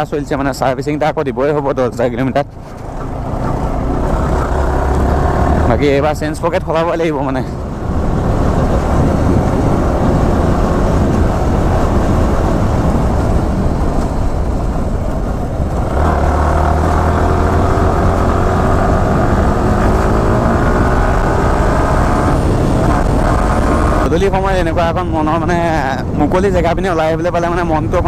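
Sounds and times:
motorcycle engine running: 2.6s - 6.0s
wind rush: 2.8s - 28.0s.

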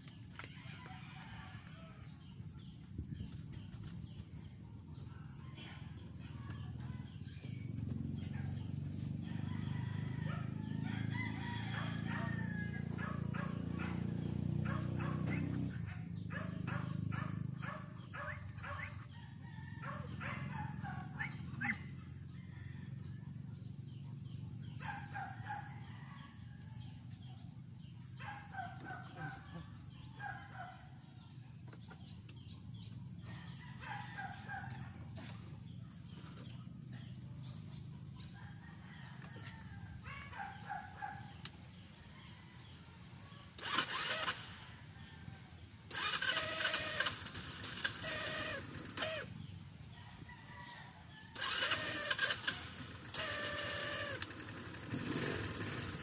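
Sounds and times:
rooster crowing: 8.2s - 15.5s, 18.2s - 23.3s, 24.6s - 27.0s, 33.3s - 35.2s, 38.2s - 41.4s, 47.9s - 55.3s.

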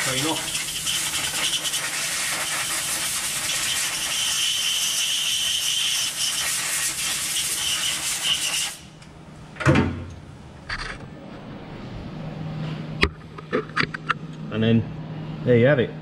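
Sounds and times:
hissing rubbing on metal: 0.0s - 8.9s.

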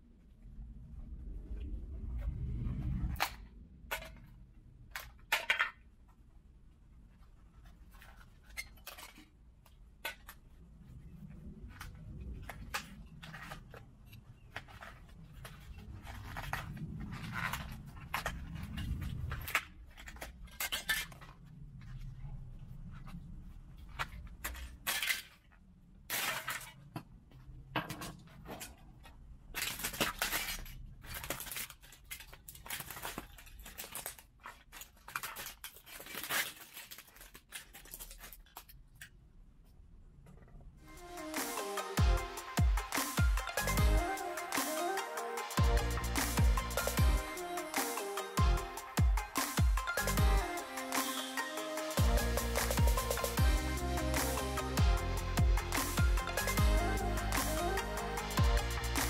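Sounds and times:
plastic pieces clattering: 27.8s - 39.1s.

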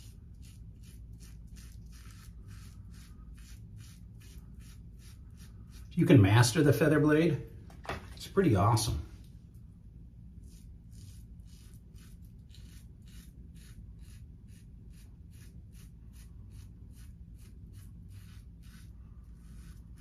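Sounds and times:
razor scraping beard stubble: 0.0s - 6.1s, 10.4s - 20.0s.

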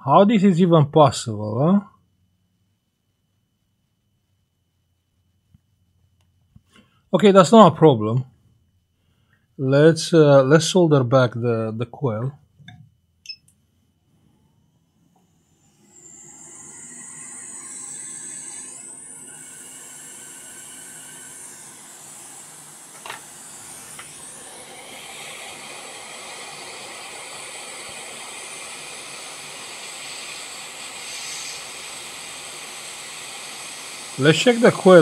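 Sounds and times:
hot air blower hissing: 15.3s - 35.0s.

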